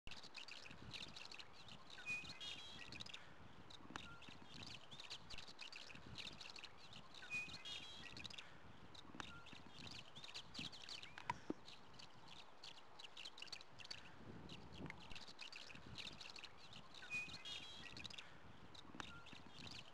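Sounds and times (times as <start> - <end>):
birds chirping: 0.3 - 19.9
bird song phrase: 0.5 - 3.3, 4.0 - 8.6, 15.0 - 18.4.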